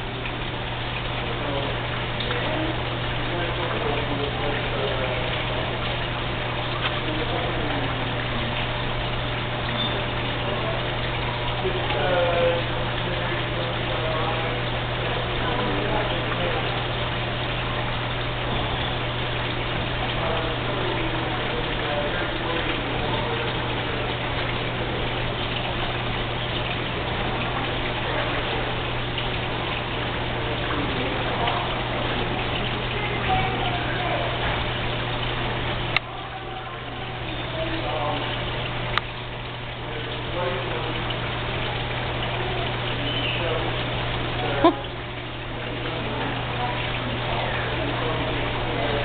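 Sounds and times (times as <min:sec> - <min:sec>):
low steady hum: 0:00.0 - 0:49.0
running water rushing: 0:00.0 - 0:49.0.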